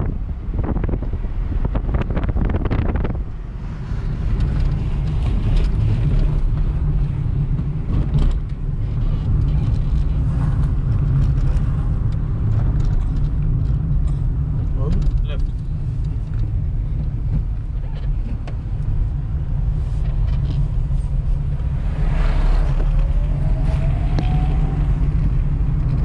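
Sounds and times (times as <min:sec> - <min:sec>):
vehicle driving rumble: 0:00.0 - 0:26.0
wind buffeting microphone: 0:00.0 - 0:26.0.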